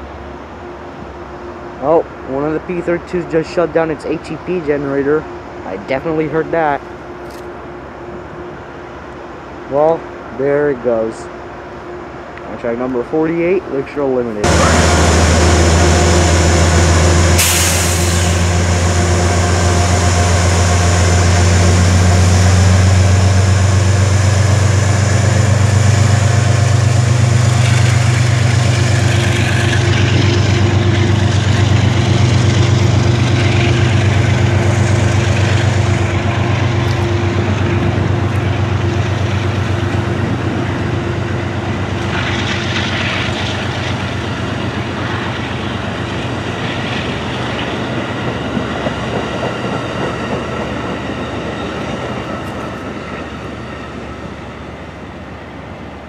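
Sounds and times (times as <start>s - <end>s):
locomotive low drone: 0.0s - 56.0s
short hiss of air: 17.3s - 18.8s.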